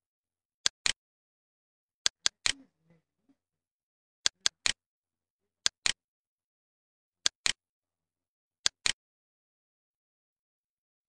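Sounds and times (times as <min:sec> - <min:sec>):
computer mouse clicks: 0:00.6 - 0:01.0, 0:02.1 - 0:02.6, 0:04.3 - 0:04.8, 0:05.6 - 0:06.0, 0:07.2 - 0:07.6, 0:08.6 - 0:09.0.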